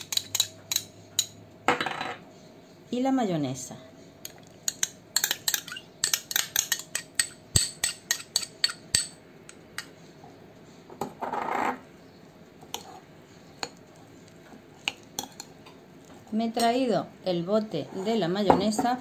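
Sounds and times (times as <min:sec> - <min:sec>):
metal spoon clinking on glass bowl: 0:00.0 - 0:01.4, 0:04.2 - 0:09.9
spoon scraping: 0:00.0 - 0:01.4, 0:04.2 - 0:10.1, 0:12.7 - 0:15.6.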